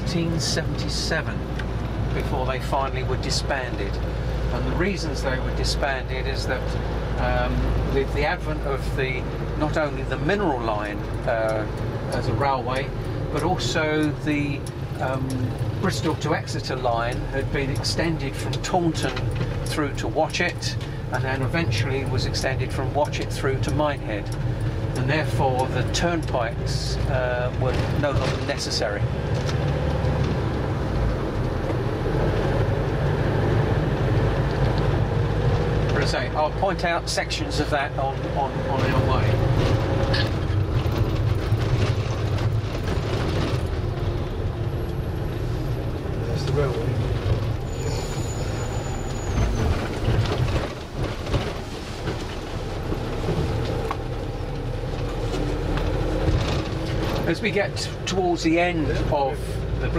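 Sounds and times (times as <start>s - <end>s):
bus engine drone: 0.0s - 59.9s
road noise: 0.0s - 59.9s
knocks and rattles: 38.6s - 44.7s.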